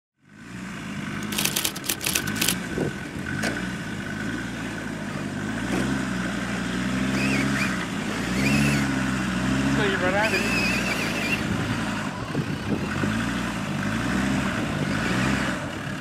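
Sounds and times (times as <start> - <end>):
diesel engine pulling at low revs: 0.2 - 16.0
sharp crackles: 1.2 - 2.6.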